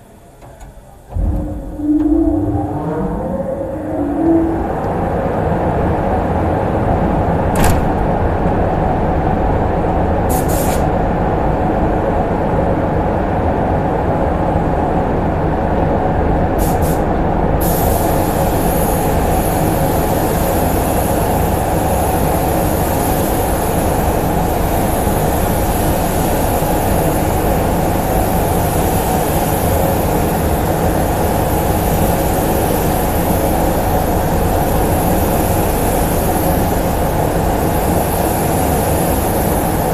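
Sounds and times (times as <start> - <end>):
ventilation running: 0.0 - 39.9
spray gun hissing: 17.6 - 39.9.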